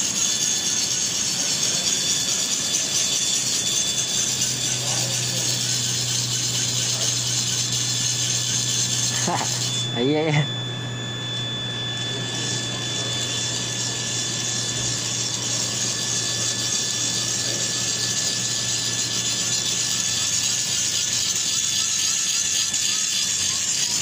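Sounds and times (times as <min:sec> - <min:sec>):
generator whirring: 0:00.0 - 0:24.0.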